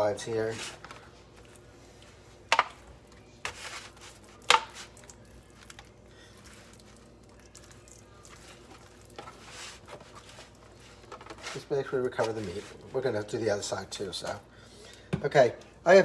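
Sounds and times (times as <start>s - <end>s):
hand squishing mustard into ribs: 1.1s - 13.2s.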